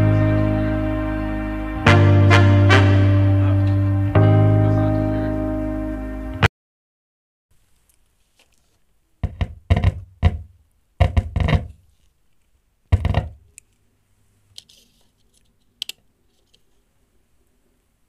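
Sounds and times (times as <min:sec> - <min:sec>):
loudspeaker thumps: 0:09.2 - 0:11.7, 0:13.0 - 0:13.4.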